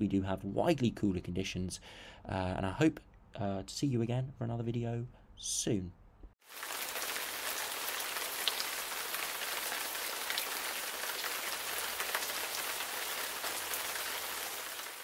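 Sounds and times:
rain on hard surfaces: 6.4s - 15.0s.

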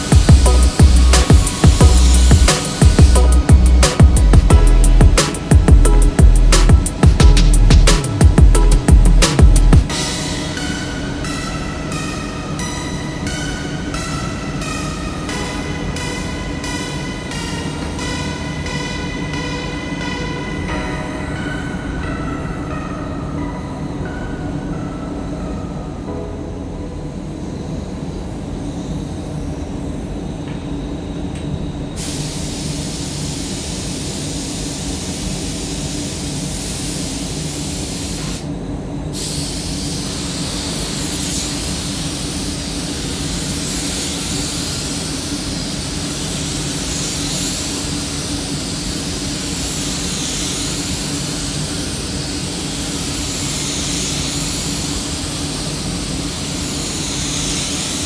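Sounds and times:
spray gun hissing: 0.0s - 11.0s, 32.0s - 38.4s, 39.2s - 58.0s
spray booth low hum: 0.0s - 58.0s.

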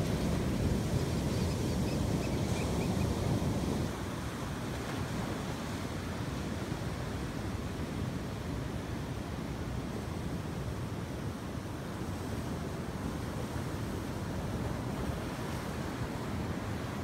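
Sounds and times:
wind on microphone: 0.0s - 4.0s.

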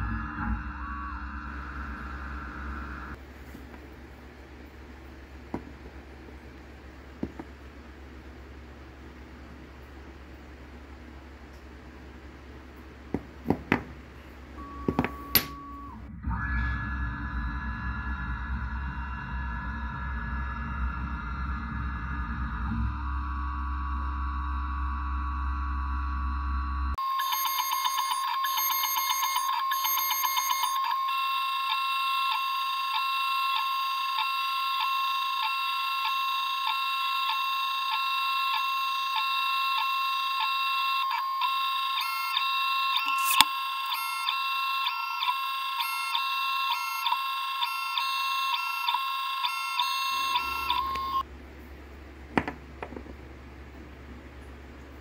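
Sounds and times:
milling spindle high-pitched whine: 0.0s - 3.2s, 14.6s - 51.2s.

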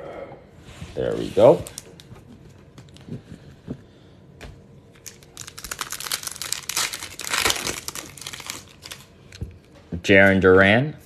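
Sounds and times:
foil wrapper tearing and crinkling: 5.0s - 9.1s.

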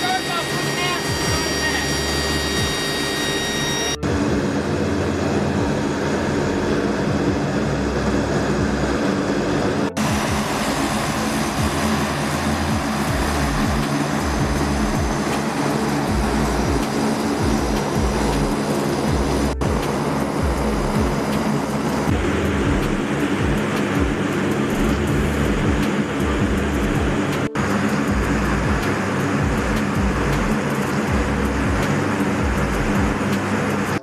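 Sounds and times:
turboprop engines droning: 0.0s - 34.0s.

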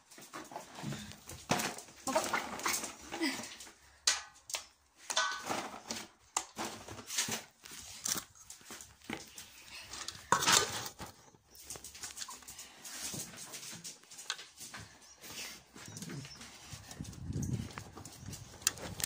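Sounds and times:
dog whimpering: 15.0s - 17.0s.

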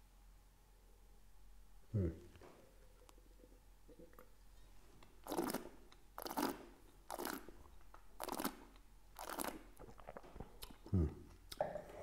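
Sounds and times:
person slurping wine: 5.2s - 7.5s.

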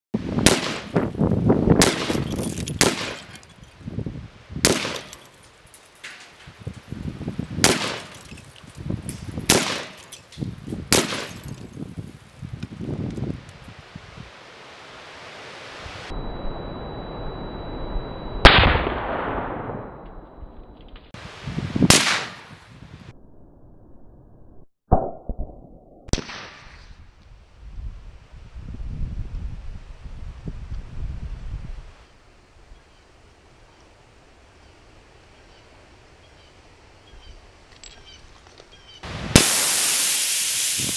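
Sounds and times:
rifle shots: 0.4s - 1.0s, 1.8s - 3.4s, 4.6s - 5.2s, 7.6s - 8.2s, 9.5s - 10.0s, 10.9s - 11.5s, 18.4s - 20.0s, 21.9s - 22.4s, 39.4s - 40.8s.

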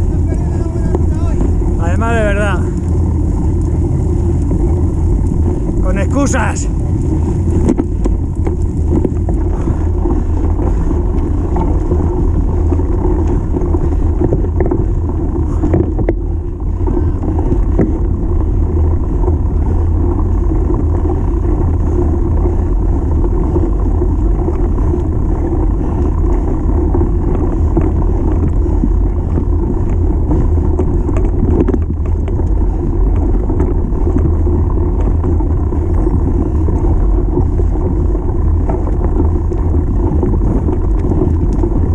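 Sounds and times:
bike clicks and rattles: 0.0s - 41.9s
tyres on gravel: 0.0s - 41.9s
wind buffeting microphone: 0.0s - 41.9s.

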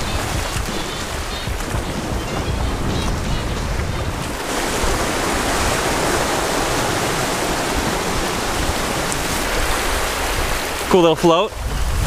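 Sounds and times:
surf washing over rocks: 0.0s - 12.0s.

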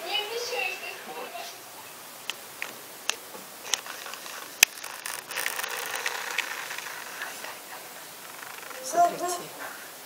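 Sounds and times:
camera handling rustling: 3.6s - 7.6s
camera clicks: 3.7s - 7.6s.

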